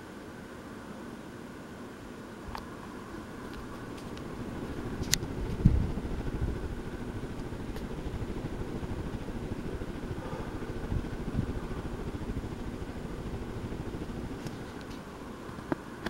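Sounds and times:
ceiling fan running: 0.0 - 16.0
low thumps: 5.2 - 14.4.

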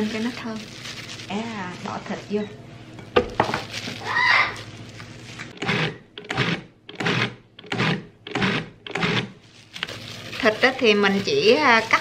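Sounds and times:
food processor pulsing: 5.5 - 12.0.

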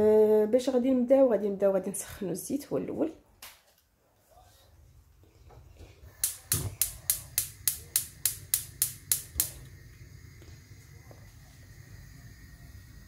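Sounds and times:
gas flame hissing: 5.5 - 13.0
gas igniter clicking: 6.2 - 9.8.

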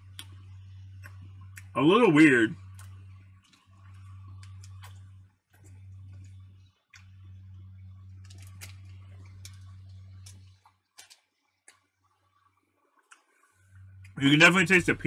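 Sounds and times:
steady low hum: 0.0 - 15.0
chewing clicks: 0.1 - 0.4, 2.6 - 7.2, 8.2 - 11.9.

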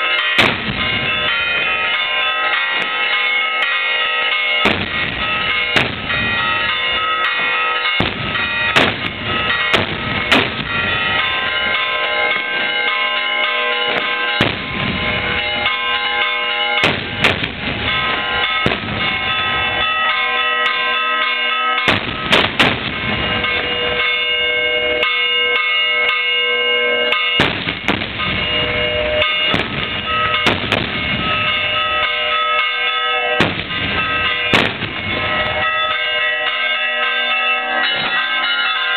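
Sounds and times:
firecracker bangs: 0.0 - 2.0, 4.6 - 12.7, 13.9 - 15.8, 16.8 - 19.8, 21.8 - 24.1, 27.3 - 31.9, 33.4 - 35.9, 37.8 - 38.3
church bells pealing: 0.0 - 38.9.

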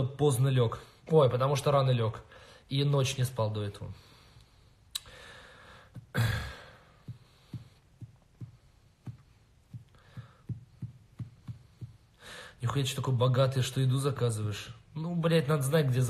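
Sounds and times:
man sighing: 5.0 - 7.8
hand tapping on phone: 5.9 - 6.2, 7.0 - 12.2.

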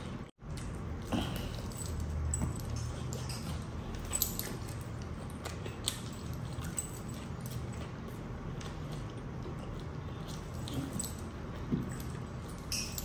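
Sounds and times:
steady low hum: 0.0 - 13.0
chewing and lip smacks: 2.7 - 11.7.

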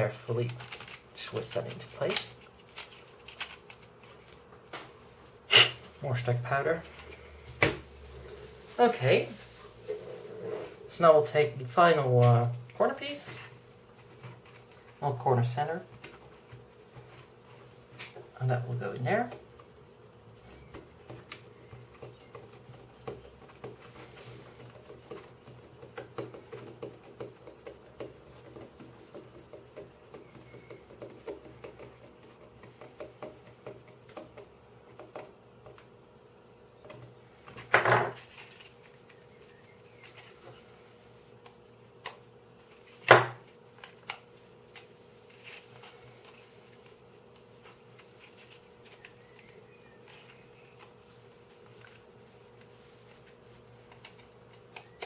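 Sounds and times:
hard parts knocking on wooden desk: 37.7 - 38.2.

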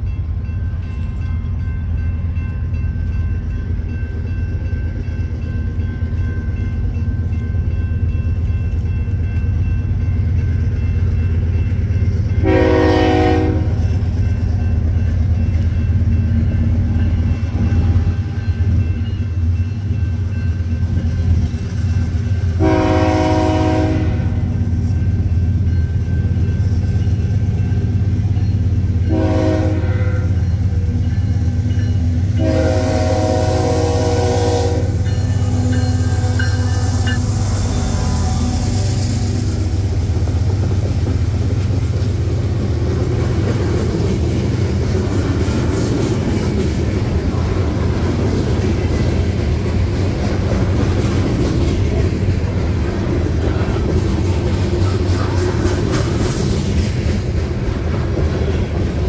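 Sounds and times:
freight train rumble: 0.0 - 59.0
train air horn blasts: 12.4 - 13.8, 22.6 - 24.5, 29.0 - 30.4, 32.4 - 39.5.

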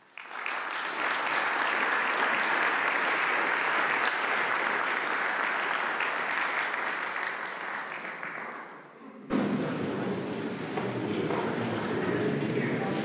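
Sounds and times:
audience applauding: 0.0 - 8.8.

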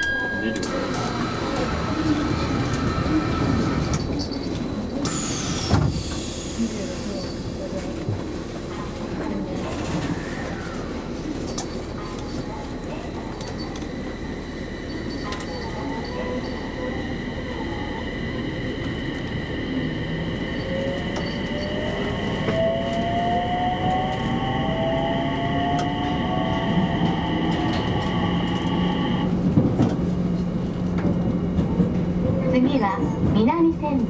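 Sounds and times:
wheels rumbling on track: 0.6 - 34.0
electric train motor whine: 14.1 - 29.4.

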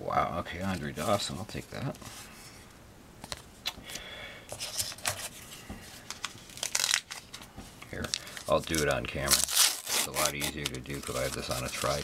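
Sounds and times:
cards handled clicks and rustles: 6.0 - 12.0
foil wrapper crinkling and tearing: 6.1 - 12.0.

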